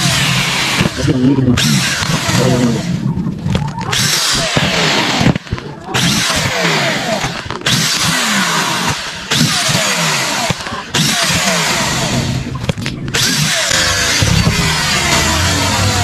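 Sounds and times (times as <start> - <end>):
power drill drilling metal: 0.0 - 1.0, 3.9 - 12.5, 13.1 - 16.0.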